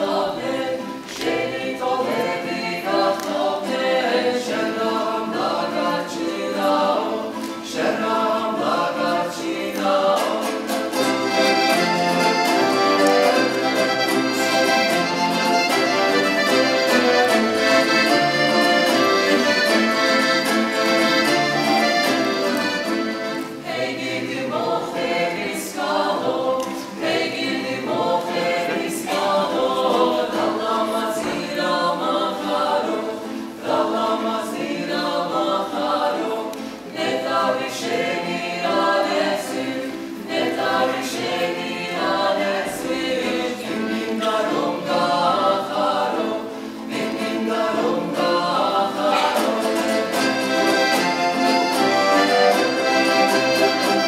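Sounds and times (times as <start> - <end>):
accordion: 0.0 - 54.0
mixed choir singing folk song: 0.0 - 54.0.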